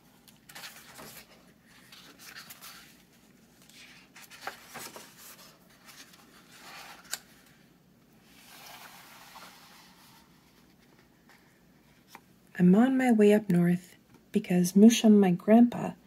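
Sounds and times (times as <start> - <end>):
book pages turning: 0.2 - 7.6, 8.2 - 12.3.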